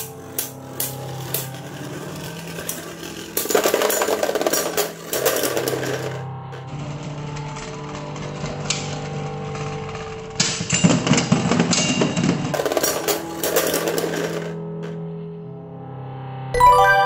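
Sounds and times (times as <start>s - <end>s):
spinning tops clashing and rattling: 0.0s - 6.3s, 10.4s - 15.0s
spinning tops whirring: 0.0s - 8.0s, 12.5s - 15.0s.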